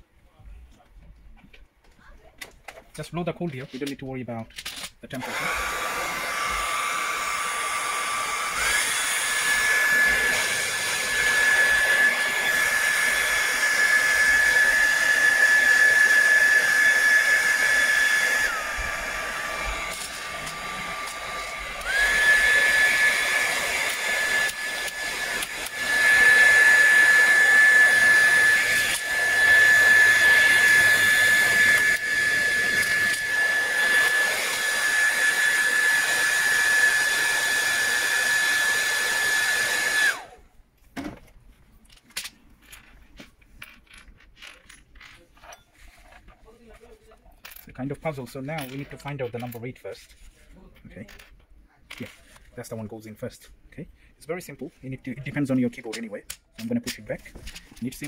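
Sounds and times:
hair dryer blowing: 5.2 - 40.4.

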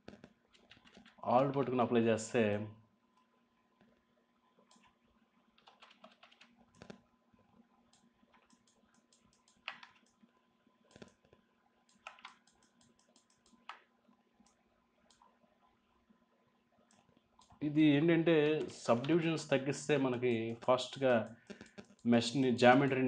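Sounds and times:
keyboard and mouse clicking: 0.0 - 1.2, 4.7 - 4.9, 5.6 - 7.0, 7.9 - 10.2, 10.9 - 13.9, 20.3 - 22.1.

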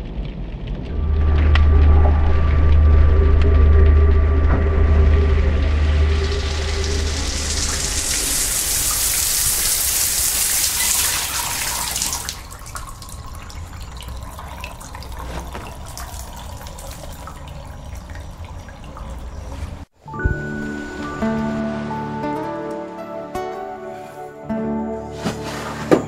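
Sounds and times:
faint dripping: 0.8 - 19.9
shower spray hissing: 5.6 - 13.2.

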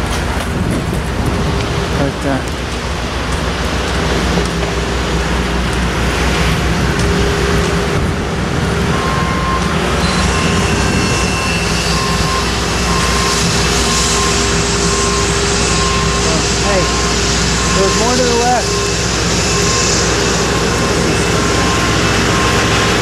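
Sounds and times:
construction machinery engines: 0.0 - 23.0
reversing alarm beeping: 8.8 - 23.0.

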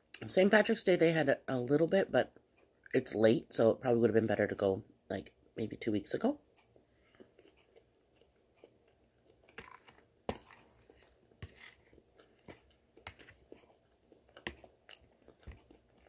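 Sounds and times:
chewing food: 6.6 - 16.0.

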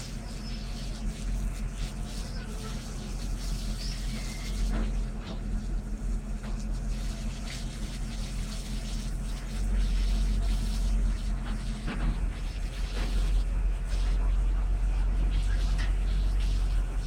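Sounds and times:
fire hose water spraying: 0.0 - 17.0.

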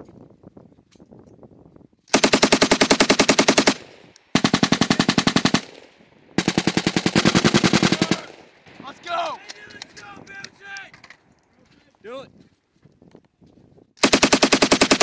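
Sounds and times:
machine gun bursts: 2.1 - 5.8, 6.4 - 8.4, 14.0 - 15.0.

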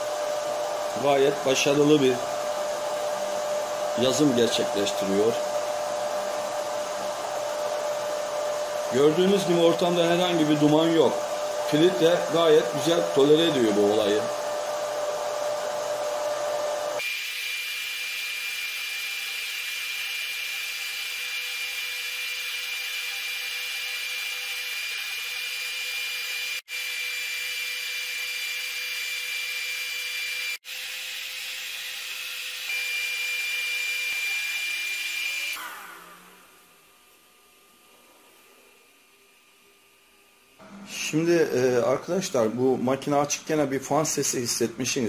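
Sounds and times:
fans whirring: 0.0 - 17.0.

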